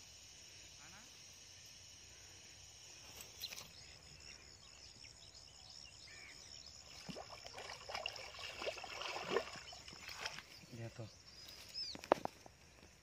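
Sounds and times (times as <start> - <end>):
fish splashing in water: 6.9 - 10.5.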